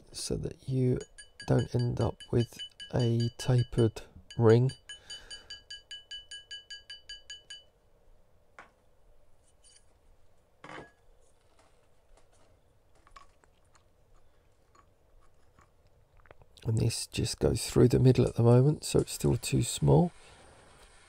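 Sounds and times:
hammer tapping metal ring: 0:00.9 - 0:07.7.

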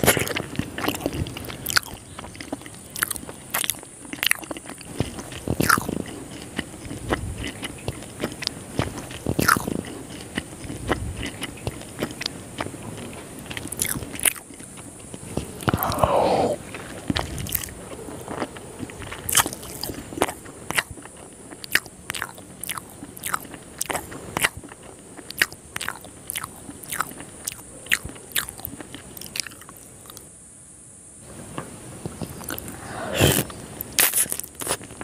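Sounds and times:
wet chewing mouth clicks: 0:00.0 - 0:30.2, 0:32.0 - 0:35.0
wet bite: 0:15.6 - 0:16.6, 0:32.3 - 0:34.9.

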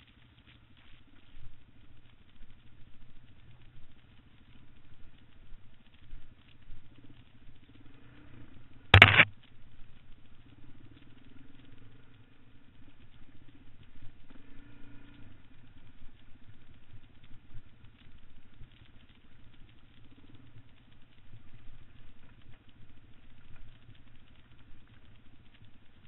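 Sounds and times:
loud sharp knock: 0:09.0 - 0:09.3.

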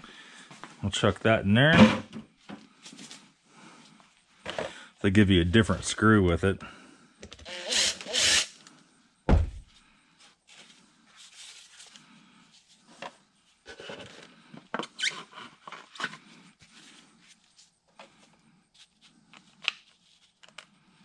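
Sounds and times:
dull thump: 0:09.3 - 0:09.6.

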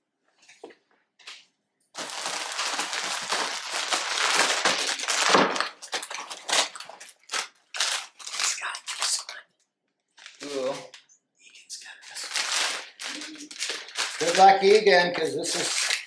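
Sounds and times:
plastic packages crinkling: 0:01.9 - 0:09.4, 0:10.1 - 0:11.0, 0:11.8 - 0:16.0.

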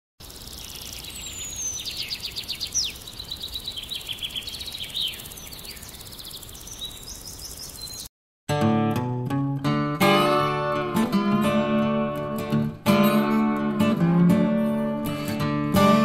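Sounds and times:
birds chirping and trilling: 0:00.2 - 0:08.1.

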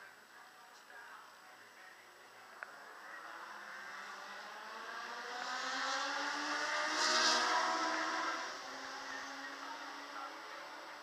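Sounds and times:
distant racing car engine passing: 0:02.5 - 0:11.0.

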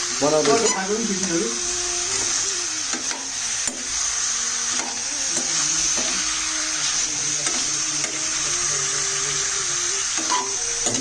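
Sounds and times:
pork sizzling in oil: 0:00.0 - 0:11.0.

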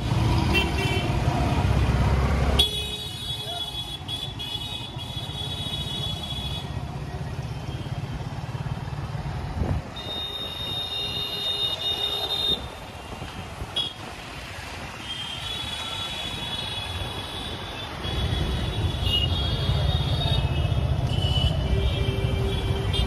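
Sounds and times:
high steady tone from traffic: 0:00.0 - 0:23.0
road noise: 0:00.0 - 0:23.0.

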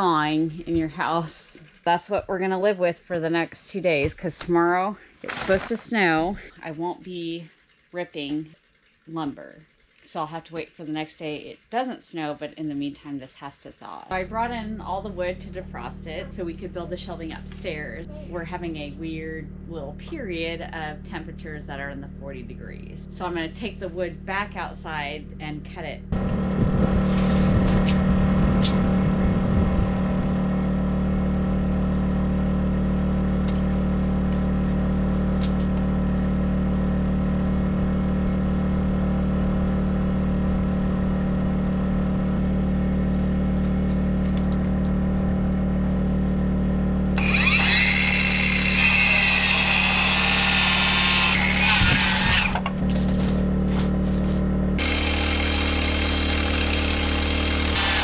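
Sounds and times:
steady low hum: 0:00.0 - 0:58.0
circular saw cutting wood: 0:47.2 - 0:58.0.

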